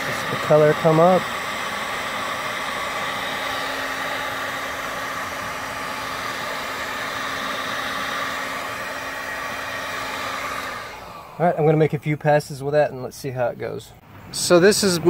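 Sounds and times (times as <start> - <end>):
low motor hum: 0.0 - 11.4
heat gun blowing air: 0.0 - 12.0.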